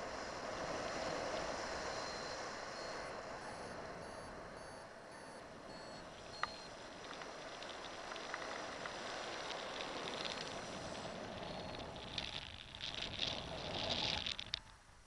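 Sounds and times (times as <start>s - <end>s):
crackling rustling of glove: 6.6s - 14.9s.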